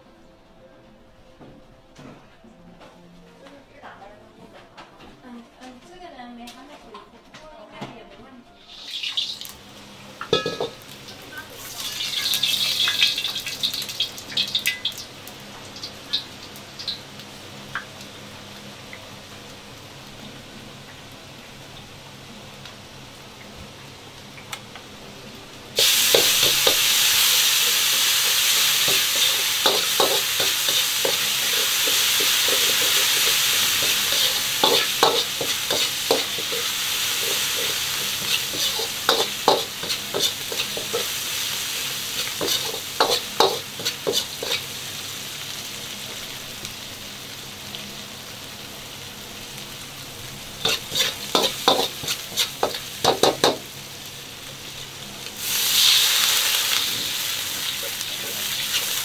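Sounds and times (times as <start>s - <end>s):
food sizzling in hot oil: 8.6s - 59.0s
metal ladle scraping wok: 25.8s - 41.2s, 42.1s - 44.7s, 50.6s - 53.5s
ladle clacking against wok: 28.5s - 41.1s, 42.3s - 44.6s, 50.6s - 53.6s.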